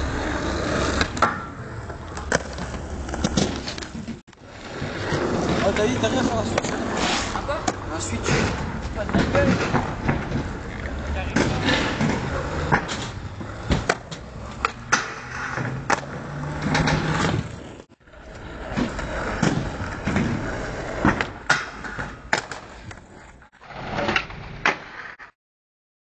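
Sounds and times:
skateboard wheels rolling on asphalt: 0.0 - 25.3
skateboard popping and landing clacks: 6.2 - 17.6, 18.7 - 25.1.

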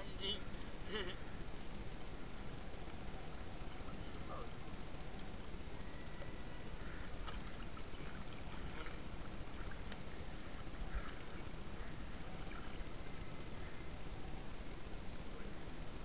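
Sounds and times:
water rushing: 0.0 - 16.0
water splashing and dripping: 7.2 - 10.1.

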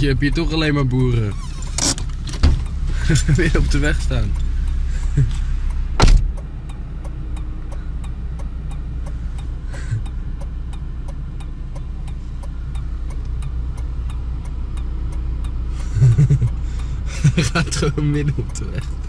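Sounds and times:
car engine idling: 0.0 - 19.0
turn-signal relay ticking: 0.0 - 19.0
car door shutting: 1.2 - 3.8, 5.3 - 6.4.

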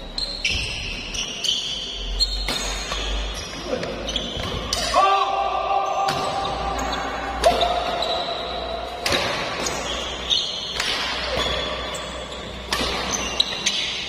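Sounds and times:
shoes squeaking on court: 0.0 - 4.9, 6.1 - 14.0
racket striking shuttlecock: 2.4 - 3.3, 8.9 - 12.0, 12.6 - 14.0.

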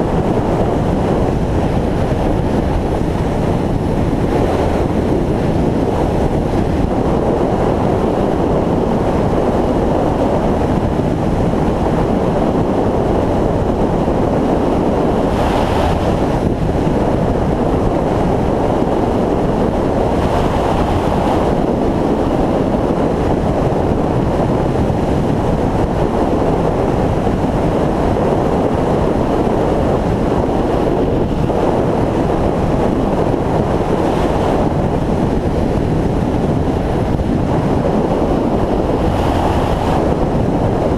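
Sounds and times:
motorcycle running: 0.0 - 40.9
wind buffeting microphone: 0.0 - 40.9
road noise: 13.2 - 22.6, 28.9 - 40.9.

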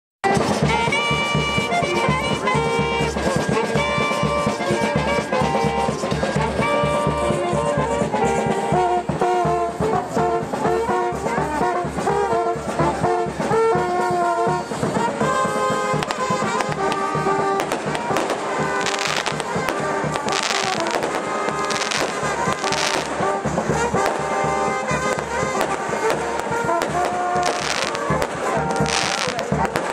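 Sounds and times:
brass band playing: 0.2 - 29.9
drum: 0.2 - 29.9
fireworks bangs: 12.4 - 29.9.

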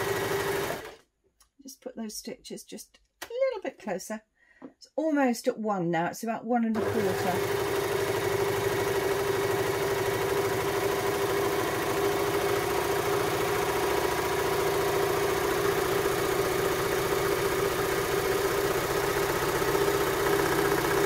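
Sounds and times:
overlocker sewing machine running: 0.0 - 1.0, 6.8 - 21.0.

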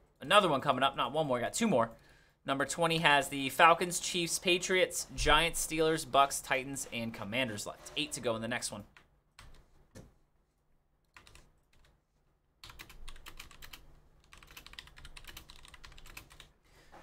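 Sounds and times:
typing on computer keyboard: 11.1 - 11.9, 12.6 - 16.5.

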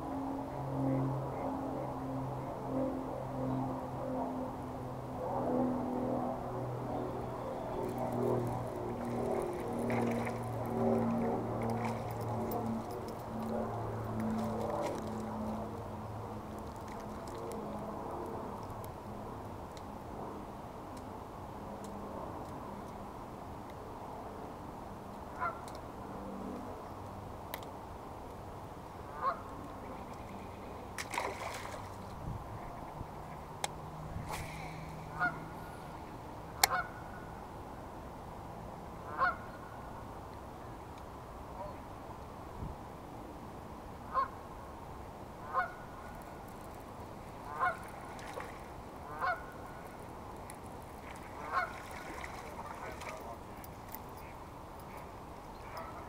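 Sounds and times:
goose honking: 35.2 - 35.4, 45.5 - 45.8, 47.5 - 47.8, 49.1 - 49.5, 51.5 - 51.8.

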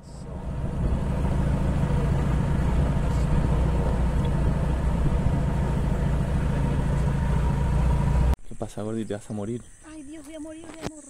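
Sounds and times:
minivan engine and road drone: 0.0 - 8.4.

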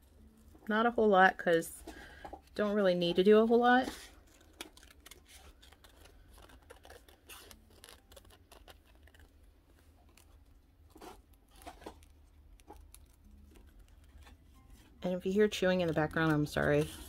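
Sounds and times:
scissors snipping paper: 3.2 - 9.4, 10.1 - 14.4, 15.4 - 17.0.

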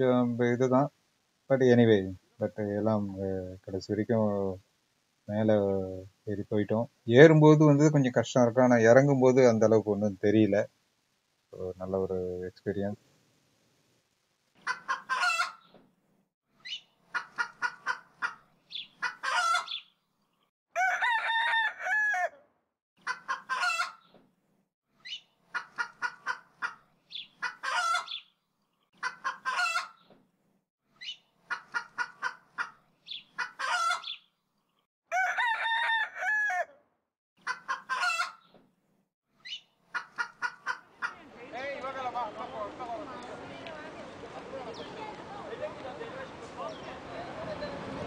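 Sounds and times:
chicken clucking and cackling: 14.6 - 15.7, 17.1 - 18.4, 19.0 - 19.8, 23.0 - 24.1, 25.5 - 26.8, 27.4 - 28.2, 29.0 - 30.1, 31.4 - 32.8, 33.4 - 34.2, 37.4 - 38.5, 39.9 - 41.4.

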